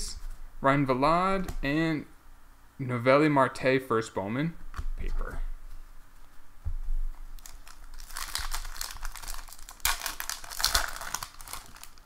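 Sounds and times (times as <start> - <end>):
plastic foil wrapper crinkling: 7.4 - 12.0.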